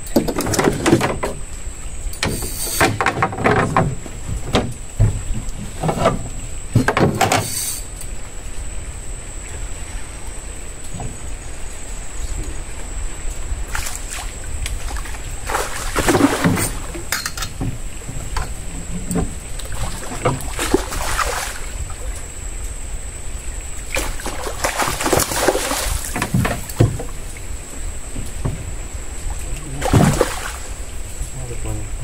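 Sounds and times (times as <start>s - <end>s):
fish splashing at water surface: 13.7s - 17.1s, 19.6s - 21.8s, 23.9s - 27.0s, 29.6s - 30.8s.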